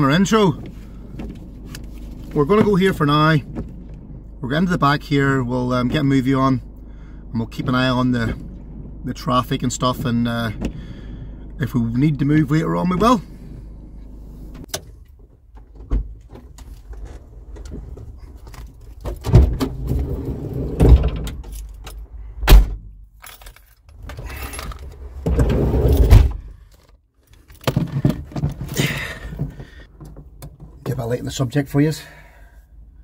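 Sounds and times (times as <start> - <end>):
rustling and handling noise: 0.5 - 2.8.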